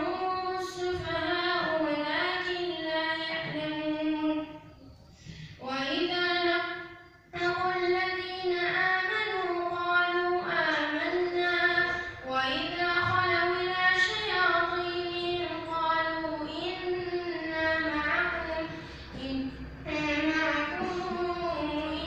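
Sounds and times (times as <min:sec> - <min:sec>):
boy chanting recitation: 0:00.0 - 0:22.0.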